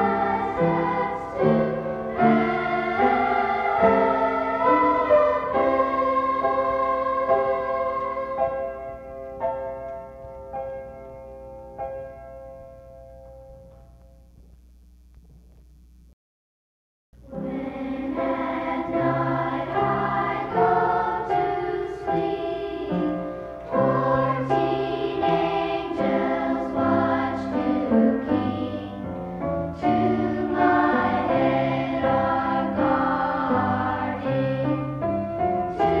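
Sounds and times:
children's choir singing: 0.0 - 9.8, 17.2 - 36.0.

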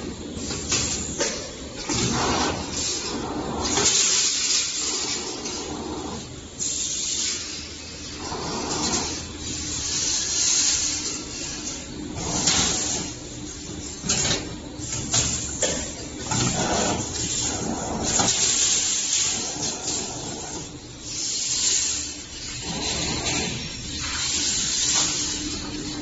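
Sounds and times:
compressed air hiss: 1.8 - 13.2, 17.0 - 25.7
low machine hum: 7.7 - 21.2.

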